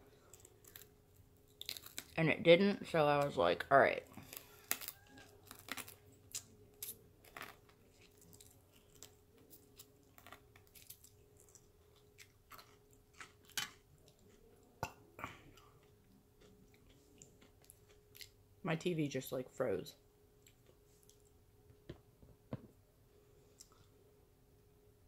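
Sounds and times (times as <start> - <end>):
chewing fried food: 0.0 - 2.2, 4.1 - 18.4, 20.4 - 21.4
crunchy bites: 0.2 - 2.2, 4.2 - 14.3.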